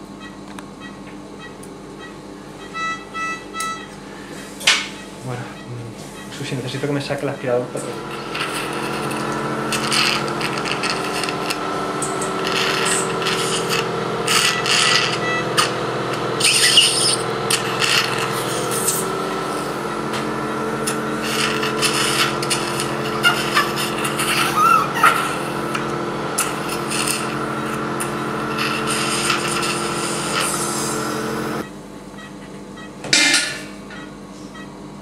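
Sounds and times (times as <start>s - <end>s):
suction unit humming: 0.0s - 35.0s
suction tip hissing: 8.0s - 19.8s, 20.8s - 31.6s.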